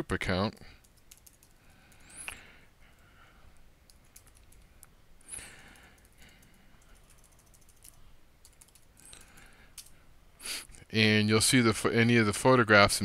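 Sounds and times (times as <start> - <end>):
typing on computer keyboard: 0.8 - 2.0, 3.9 - 4.8, 5.6 - 9.9
breathy noise: 5.2 - 8.0.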